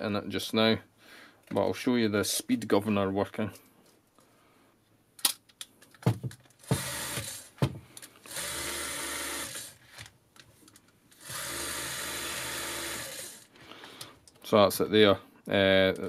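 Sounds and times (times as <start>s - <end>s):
film camera mechanism whirring: 6.7s - 7.5s, 8.2s - 10.1s, 11.1s - 13.6s.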